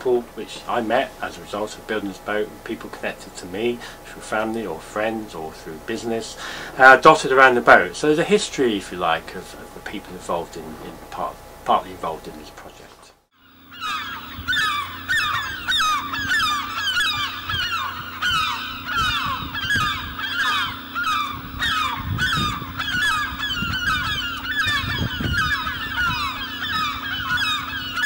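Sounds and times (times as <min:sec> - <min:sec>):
flock of birds honking: 0:13.4 - 0:28.0
low hum: 0:13.4 - 0:28.0.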